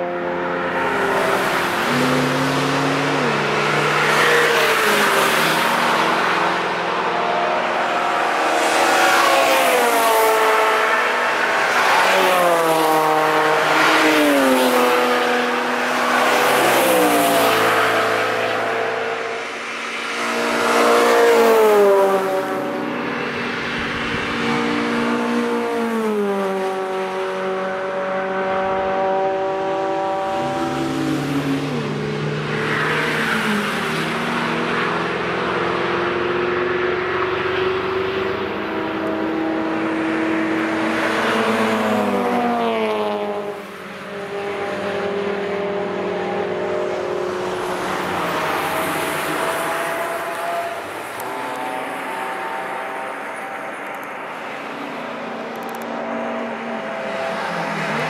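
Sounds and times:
race cars passing at speed: 0:00.0 - 0:58.0.

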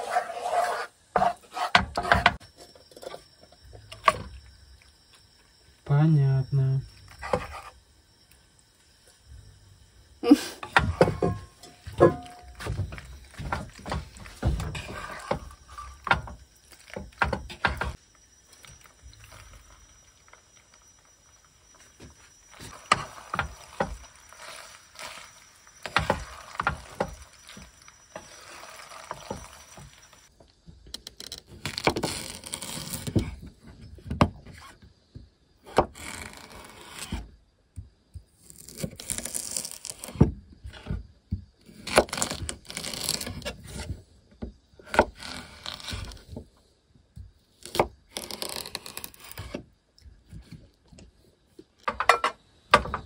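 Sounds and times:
spatula scraping frying pan: 0:00.0 - 0:02.4.

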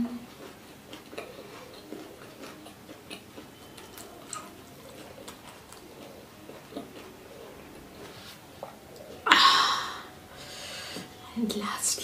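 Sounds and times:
fish being chewed: 0:00.0 - 0:09.2.

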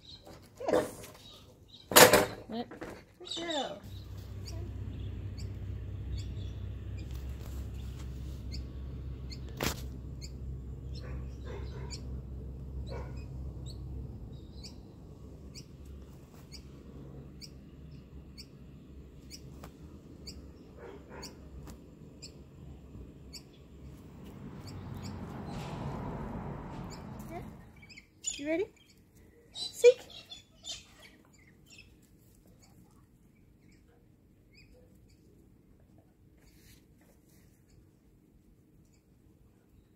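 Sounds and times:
small birds chirping: 0:00.0 - 0:25.7, 0:26.8 - 0:38.2
low rumble: 0:03.8 - 0:20.8.

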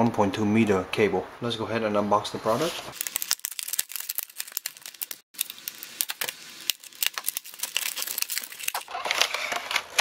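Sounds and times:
plastic packaging crackling: 0:02.9 - 0:10.0.

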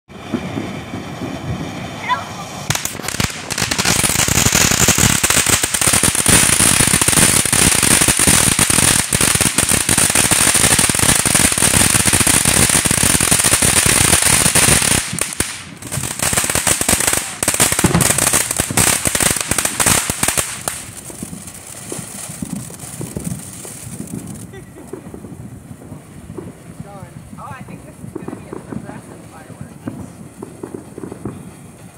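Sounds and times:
firework fountain crackling: 0:00.1 - 0:31.9
firework high hiss: 0:00.1 - 0:31.9.

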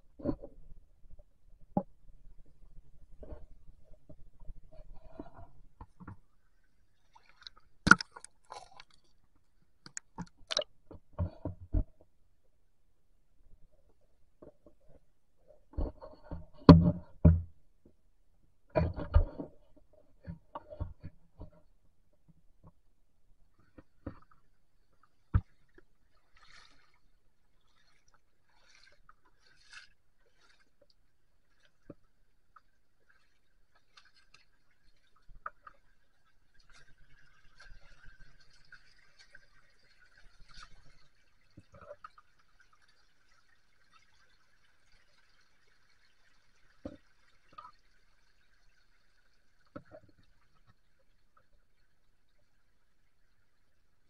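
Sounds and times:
stones knocking underwater: 0:07.4 - 0:09.0, 0:09.8 - 0:12.0.

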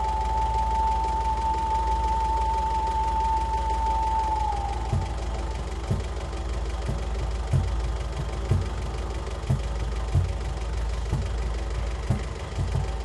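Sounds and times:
deep bass drone: 0:00.0 - 0:13.0.

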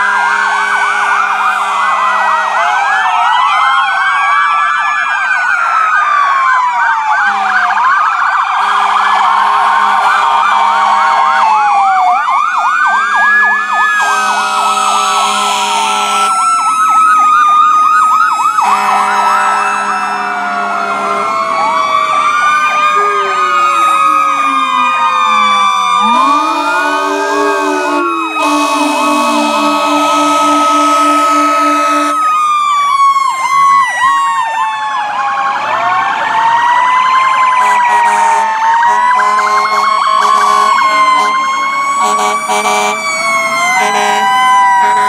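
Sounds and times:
emergency sirens wailing: 0:00.0 - 0:45.0
low horn blasts: 0:14.0 - 0:16.4, 0:18.6 - 0:21.3, 0:26.0 - 0:32.3, 0:37.6 - 0:41.4, 0:42.0 - 0:43.0, 0:43.8 - 0:45.0.

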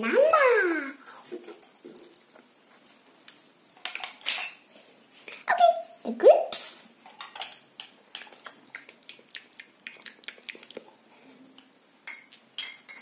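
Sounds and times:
wet mouth clicks and lip smacks: 0:08.2 - 0:10.9.

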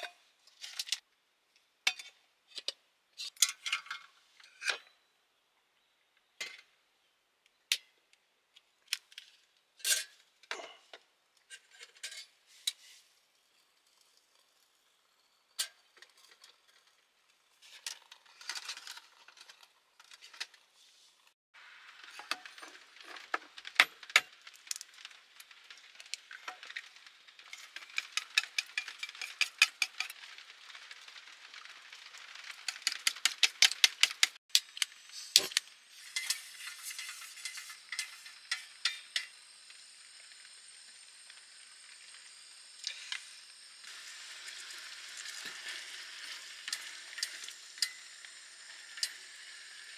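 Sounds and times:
food sizzling in a pot: 0:21.1 - 0:49.9
chopsticks beating eggs in metal cup: 0:27.5 - 0:30.2, 0:32.5 - 0:34.4.

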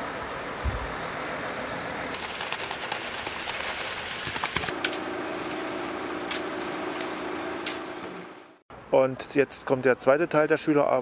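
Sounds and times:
wet concrete pouring down chute: 0:02.2 - 0:04.8
concrete mixer truck running: 0:04.6 - 0:08.6
low hum: 0:04.6 - 0:08.6.

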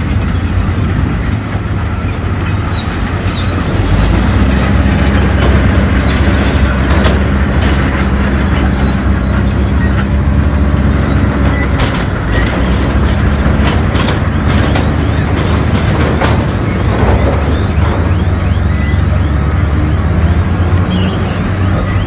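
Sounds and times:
bulldozer diesel engine: 0:00.0 - 0:22.0
track squeaks: 0:00.0 - 0:22.0.

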